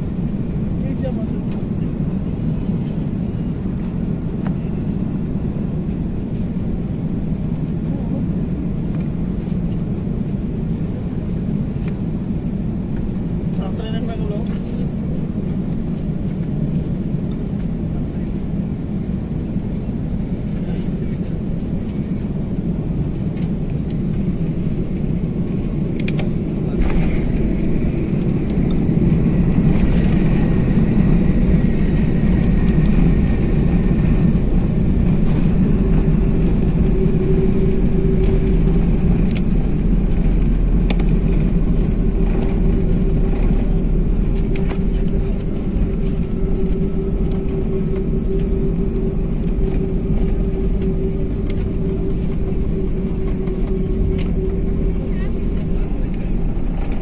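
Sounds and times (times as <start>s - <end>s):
airliner engines roaring: 0.0s - 57.0s
plane rumbling on runway: 0.0s - 57.0s
rushing air: 24.2s - 57.0s.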